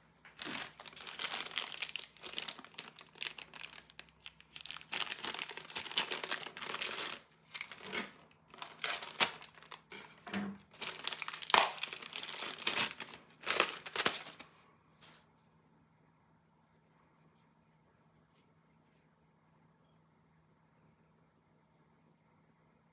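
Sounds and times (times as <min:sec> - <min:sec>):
plastic bag crinkling: 0:00.3 - 0:14.5.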